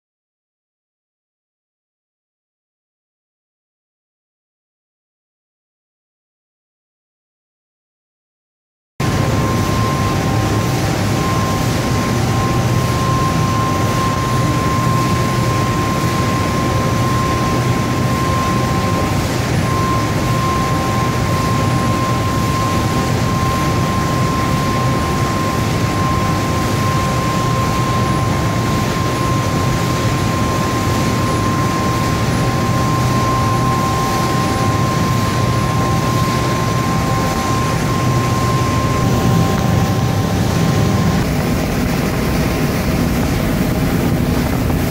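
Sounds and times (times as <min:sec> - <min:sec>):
pasta machine running with whine: 0:09.0 - 0:44.9.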